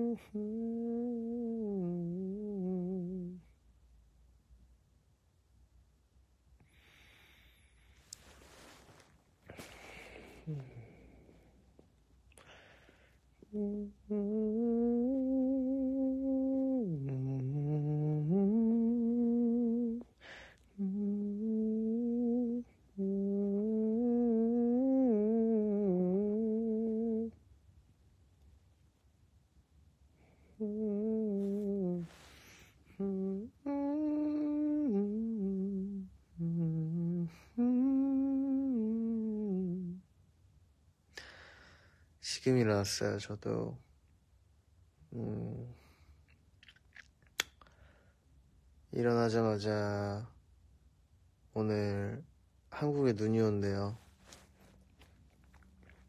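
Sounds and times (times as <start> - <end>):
man humming a slow tune: 0.0 - 3.7, 8.1 - 11.5, 13.3 - 27.5, 30.2 - 40.2, 45.0 - 46.1, 49.0 - 50.4, 51.6 - 56.0
man breathing: 6.6 - 13.4, 20.2 - 20.8, 41.1 - 42.1.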